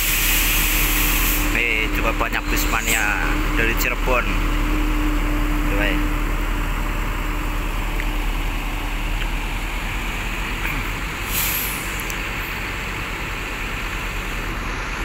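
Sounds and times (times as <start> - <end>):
compressed air hiss: 0.0 - 1.6, 11.2 - 12.1
bus diesel engine rumble: 0.0 - 15.0.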